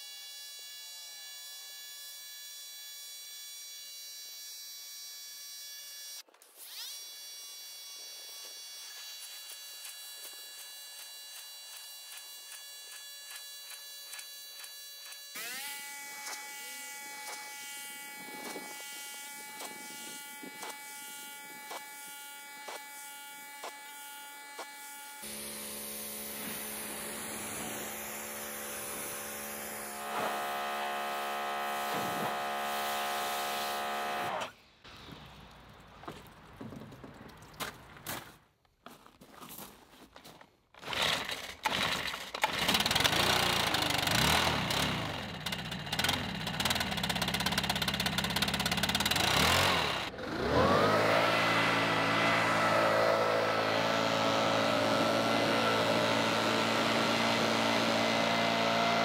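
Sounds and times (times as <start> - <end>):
pressure washer motor humming: 15.4 - 34.5, 41.7 - 59.0.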